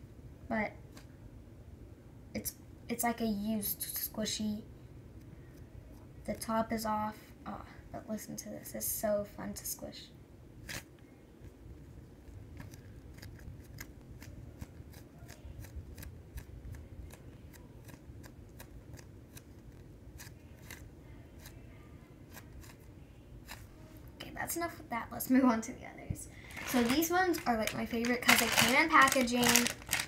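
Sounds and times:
foam toy squeezed crackling: 26.5s - 30.0s.

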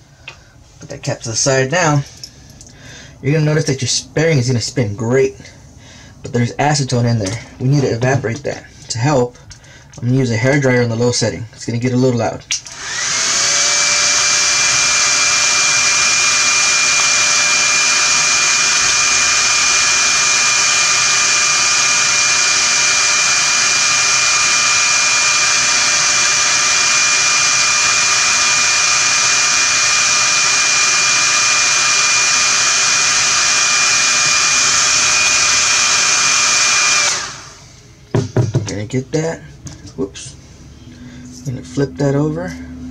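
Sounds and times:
hair dryer running: 12.6s - 38.6s.

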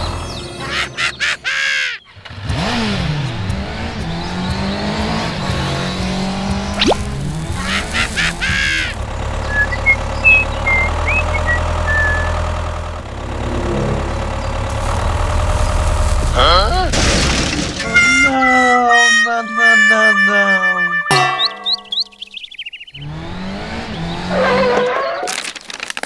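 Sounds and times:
toy tractor engine: 7.0s - 13.6s
faint high chirps: 9.5s - 12.4s, 21.1s - 22.9s
high-pitched squeaks: 17.8s - 22.4s.

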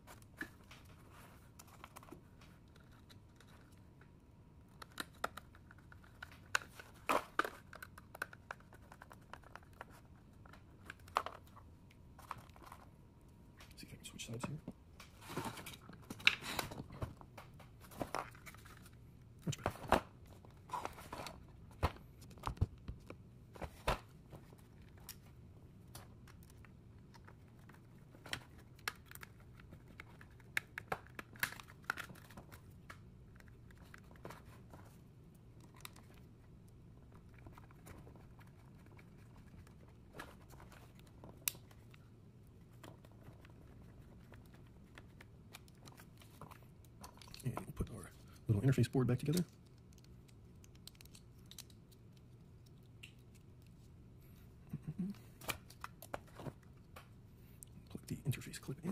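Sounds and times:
plastic parts clicking and scraping: 45.1s - 48.5s, 49.2s - 53.8s.

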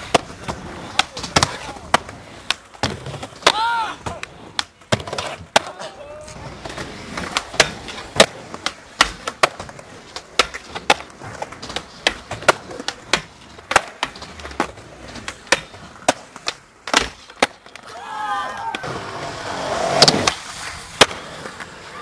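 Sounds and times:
skateboard landing on concrete: 0.0s - 21.8s
skateboard tail pops: 6.6s - 18.0s, 19.8s - 21.7s.

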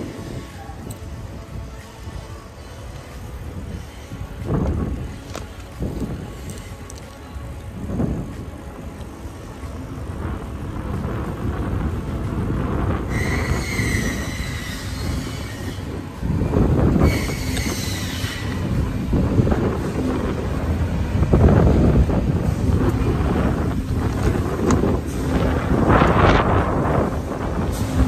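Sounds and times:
wind rumbling on microphone: 0.0s - 28.0s
bicycle brakes squealing: 13.1s - 15.9s, 17.0s - 18.5s.

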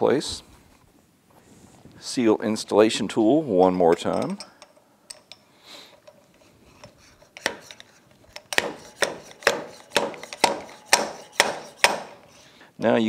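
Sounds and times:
sharp metal knocks: 8.4s - 12.2s.

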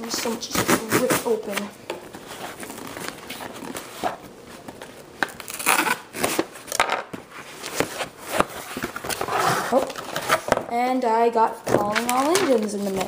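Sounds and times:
cardboard box tearing: 5.3s - 6.5s.

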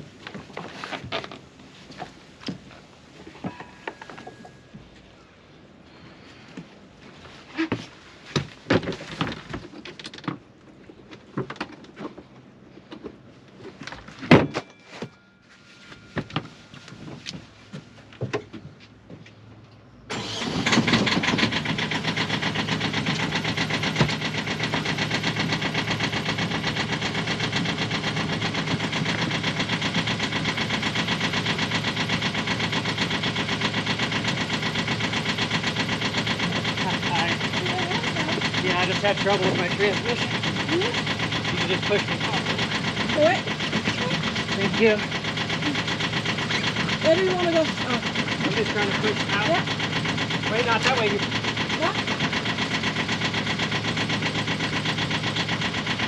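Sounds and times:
boat engine idling: 20.2s - 56.0s.

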